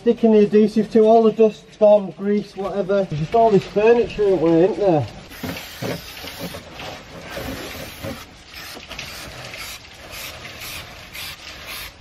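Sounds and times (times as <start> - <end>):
aerosol spray can hissing: 7.7 - 12.0.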